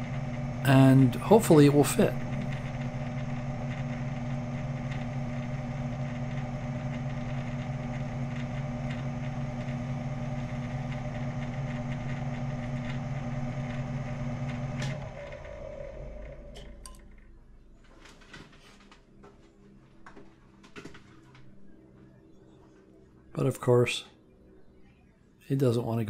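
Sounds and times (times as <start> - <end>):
lathe spindle humming: 0.0 - 17.9.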